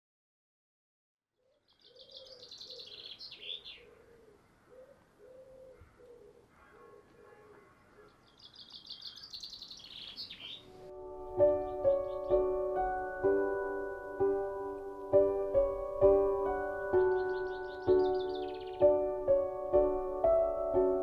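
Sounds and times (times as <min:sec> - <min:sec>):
songbird trilling: 0:01.4 - 0:04.0, 0:08.2 - 0:10.7, 0:17.0 - 0:18.9
bird cooing: 0:01.4 - 0:08.3
soft piano music: 0:10.4 - 0:21.0.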